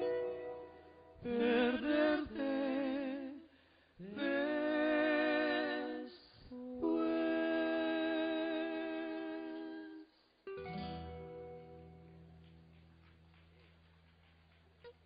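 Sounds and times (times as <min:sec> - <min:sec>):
man singing with vibrato: 0:01.2 - 0:10.2.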